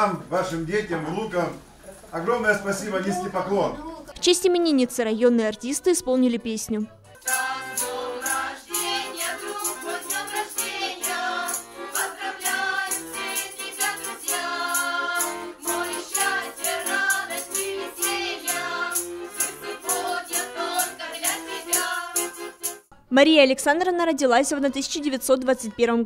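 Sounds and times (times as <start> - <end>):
accordion: 4.2 - 23.0
women singing together: 7.2 - 22.4
tambourine shaken: 7.2 - 22.9.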